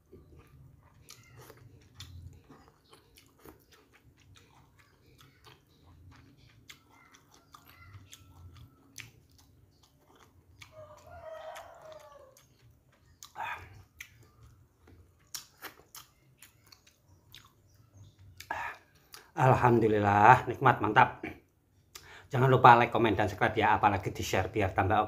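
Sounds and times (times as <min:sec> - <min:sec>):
person chewing with lip smacks: 0:00.0 - 0:19.4.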